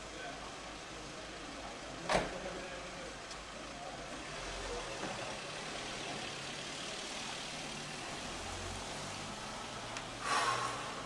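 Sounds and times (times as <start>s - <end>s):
low background noise: 0.0s - 11.0s.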